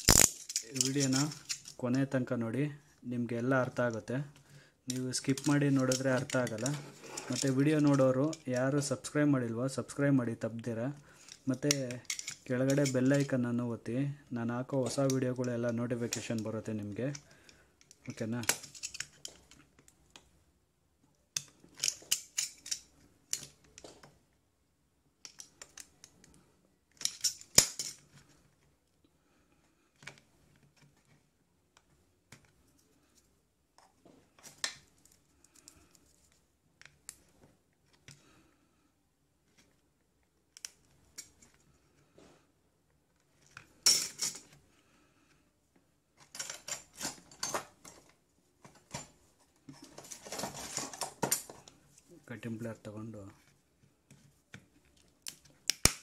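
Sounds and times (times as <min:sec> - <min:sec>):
metal tools clicking and knocking: 0:00.0 - 0:01.8, 0:11.3 - 0:13.3, 0:17.8 - 0:19.6, 0:21.4 - 0:23.9, 0:26.9 - 0:28.1.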